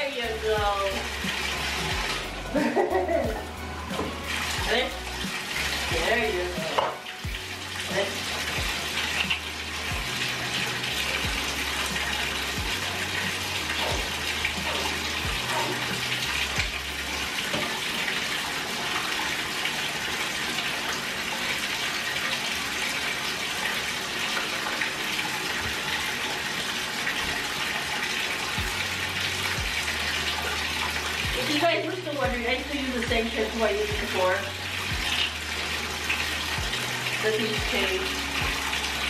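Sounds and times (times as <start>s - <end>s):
tap water running into bathtub: 0.0s - 39.0s.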